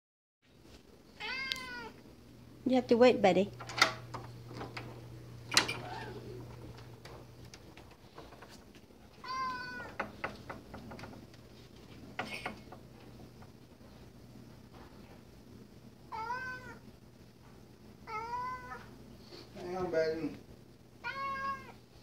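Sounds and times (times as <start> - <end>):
cat meowing: 1.2 - 2.0, 5.7 - 6.4, 9.1 - 10.0, 16.1 - 16.8, 18.0 - 18.9, 21.0 - 21.8.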